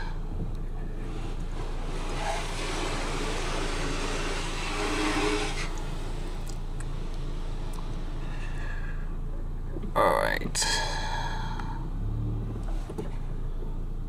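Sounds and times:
engine idling hum: 0:00.0 - 0:14.0
car wash water spray hissing: 0:01.0 - 0:09.2.

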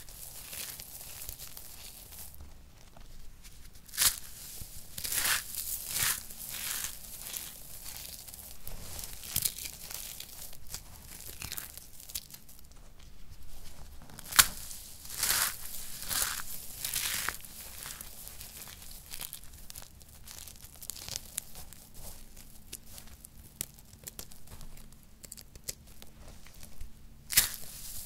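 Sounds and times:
soap crumbs crunching and rustling: 0:00.0 - 0:28.0
sharp crack: 0:27.3 - 0:27.7.

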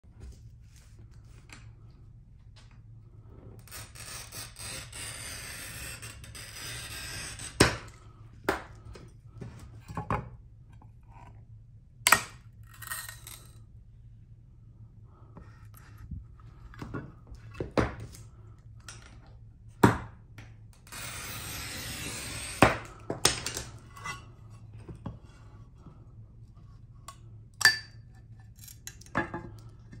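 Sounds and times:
glass cutter scoring glass: 0:03.7 - 0:07.9, 0:20.9 - 0:24.2.

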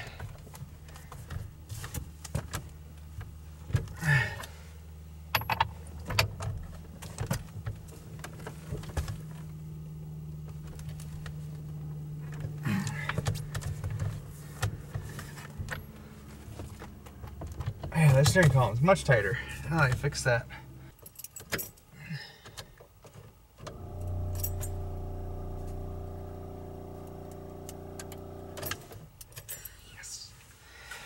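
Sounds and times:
low hum: 0:23.7 - 0:29.0.

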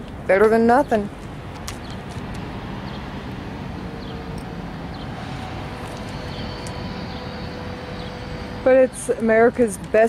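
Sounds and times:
distant road traffic: 0:00.0 - 0:10.0
wind rumble on microphone: 0:00.0 - 0:10.0
small birds chirping: 0:00.5 - 0:03.2, 0:04.0 - 0:05.3, 0:05.9 - 0:08.4.

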